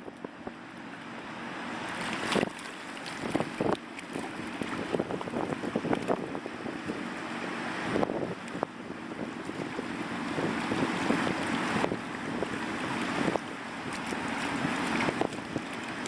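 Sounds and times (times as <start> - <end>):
hands splashing in water and mud: 1.9 - 6.2, 12.9 - 16.0
wind noise on microphone: 2.0 - 16.0.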